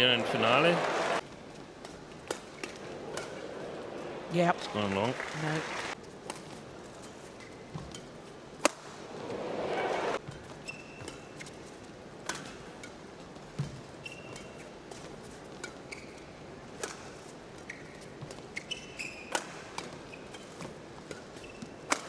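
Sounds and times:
racket hitting shuttlecock: 0:01.8 - 0:03.6, 0:07.7 - 0:09.0, 0:09.6 - 0:22.0
shoe squeaks on court: 0:10.3 - 0:11.7, 0:14.0 - 0:14.8, 0:15.8 - 0:16.3, 0:17.6 - 0:21.9.

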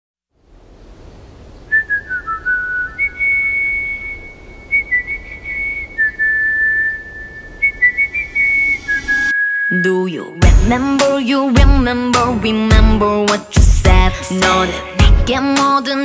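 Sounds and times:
whistled melody: 0:01.7 - 0:10.4.

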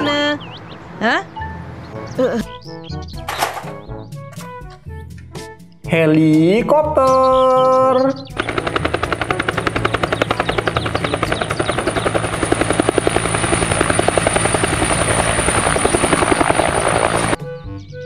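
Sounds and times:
helicopter engine whine: 0:08.4 - 0:17.4
helicopter rotor slapping: 0:08.4 - 0:17.4.

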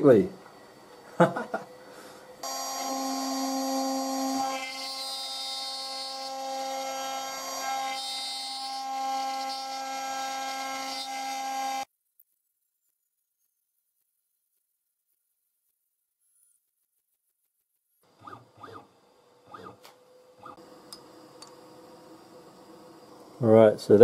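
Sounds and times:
router spindle whining: 0:02.4 - 0:11.9, 0:18.1 - 0:21.5.

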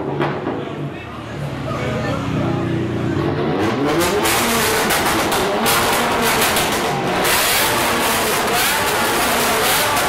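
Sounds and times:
car engine revving hard: 0:02.2 - 0:10.0.

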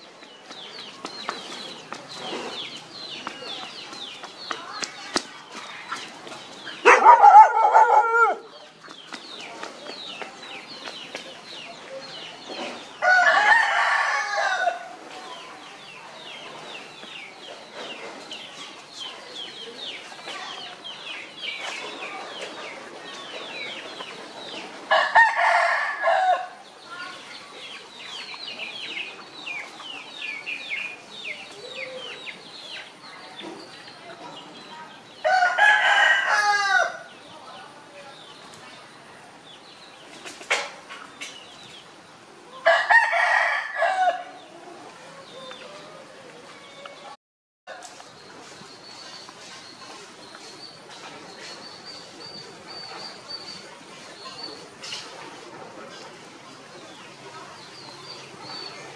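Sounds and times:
rooster crowing: 0:35.2 - 0:37.0.

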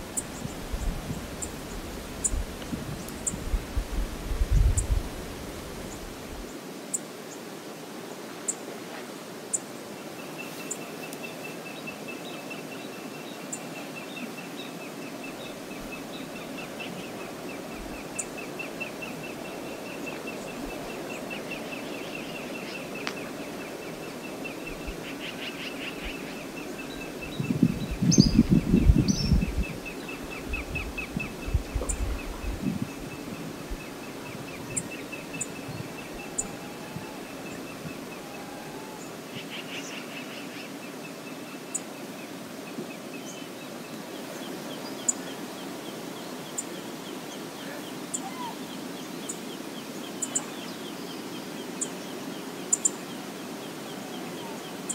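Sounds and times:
wind buffeting microphone: 0:00.0 - 0:06.5, 0:26.9 - 0:38.3
flowing water: 0:00.0 - 0:54.9
wind: 0:00.0 - 0:54.9.

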